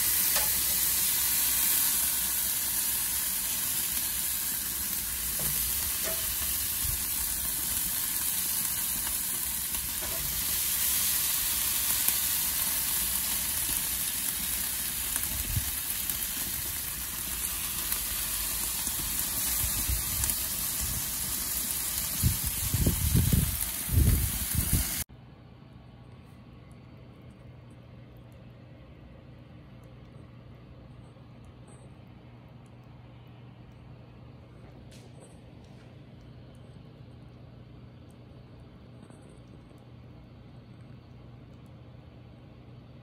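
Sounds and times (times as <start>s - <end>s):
chicken sizzling on grill: 0.0s - 25.1s
quiet low hum: 25.1s - 43.0s.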